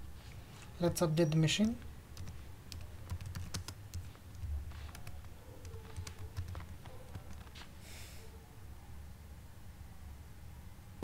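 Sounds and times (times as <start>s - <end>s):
faint low hum: 0.0s - 11.0s
computer keyboard keys clicking: 1.6s - 7.6s.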